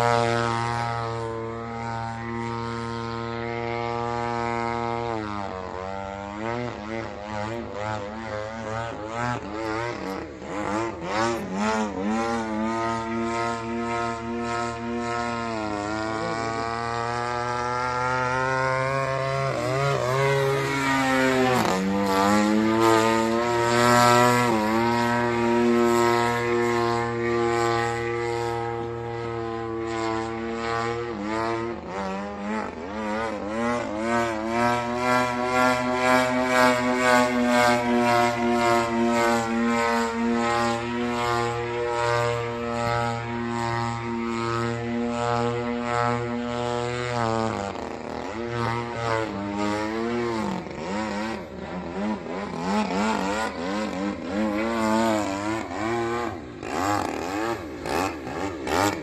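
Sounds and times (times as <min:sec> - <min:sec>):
model propeller plane flying overhead: 0:00.0 - 0:59.0.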